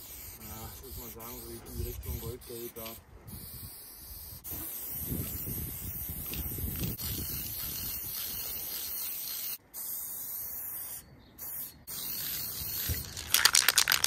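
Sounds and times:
spray paint can hissing: 0.0s - 14.0s.

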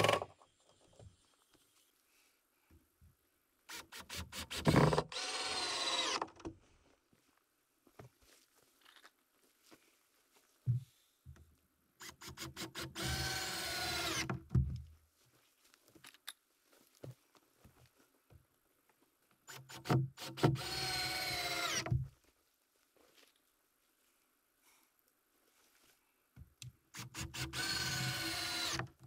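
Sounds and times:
cordless drill driving screws: 3.7s - 6.4s, 12.0s - 14.4s, 19.5s - 21.9s, 26.9s - 29.0s.

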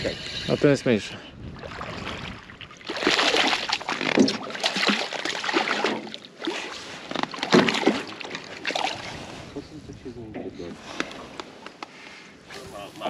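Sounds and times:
water splashing beside boat: 1.5s - 9.6s.

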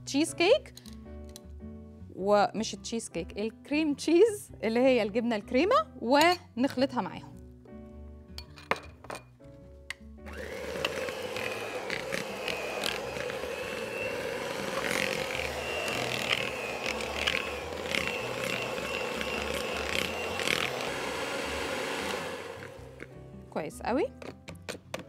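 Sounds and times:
stand mixer motor whining: 10.3s - 23.0s.

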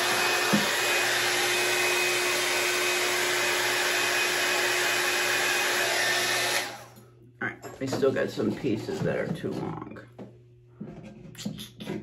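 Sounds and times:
hair dryer blowing air: 0.0s - 7.0s.

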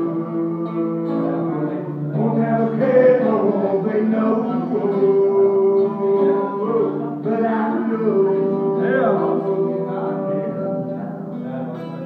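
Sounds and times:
guitar playing chords: 0.0s - 12.0s
man singing: 0.0s - 12.0s.

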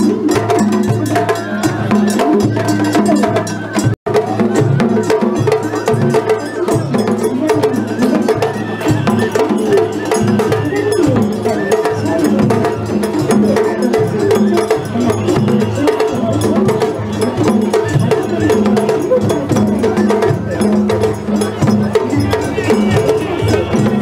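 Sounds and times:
festival drums and percussion: 0.0s - 24.0s.

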